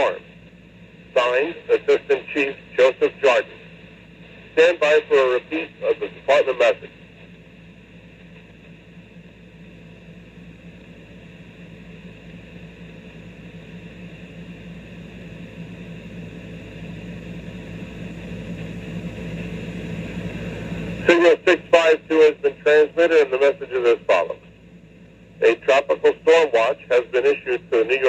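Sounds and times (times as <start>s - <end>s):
radio speaker hiss: 0.0s - 10.0s, 15.8s - 28.0s
low hum: 0.0s - 28.0s.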